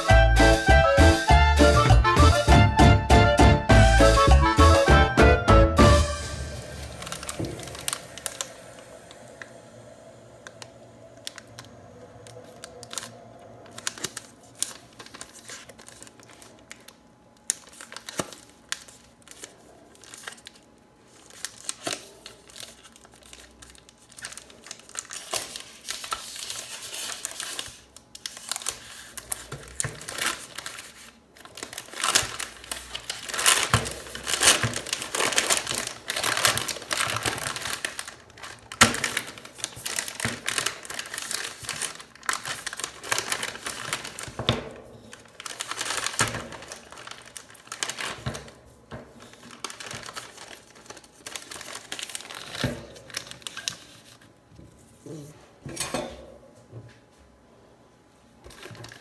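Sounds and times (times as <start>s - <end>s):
wrapper crinkling and tearing: 6.2s - 54.4s, 58.5s - 59.0s.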